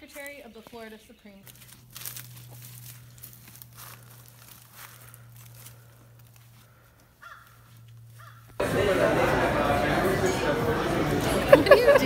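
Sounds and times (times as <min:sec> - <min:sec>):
footsteps crunching dry leaves: 0:00.0 - 0:08.6
steady low hum: 0:00.0 - 0:12.0.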